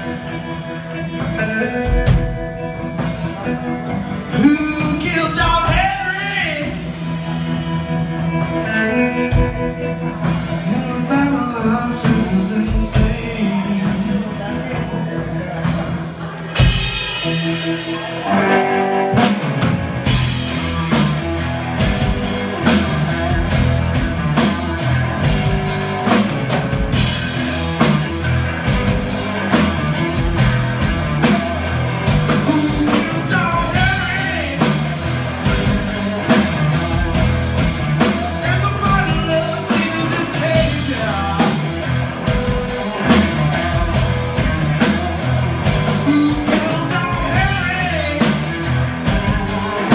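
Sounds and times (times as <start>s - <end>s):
blues-rock band playing: 0.0s - 49.9s
drum beat: 16.5s - 49.9s.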